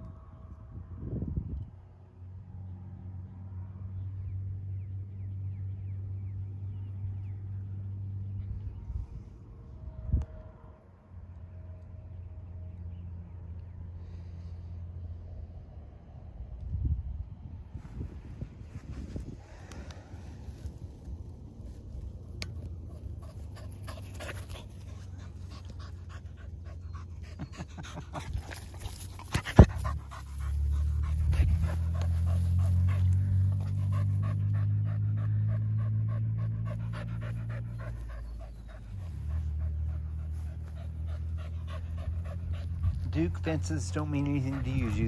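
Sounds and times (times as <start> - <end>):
dog panting: 22.8 - 45.0.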